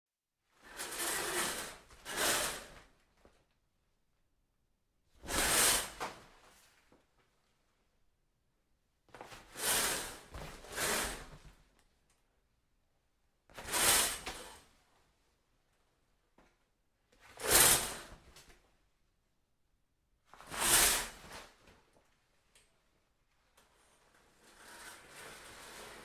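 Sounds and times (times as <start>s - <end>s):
curtain swishing: 0.6s - 2.9s, 5.2s - 6.7s, 13.6s - 14.6s, 17.4s - 18.2s.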